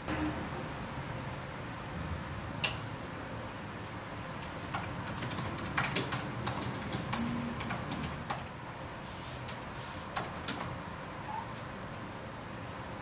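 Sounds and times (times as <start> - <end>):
laptop keyboard typing: 4.4 - 8.6, 9.5 - 10.8.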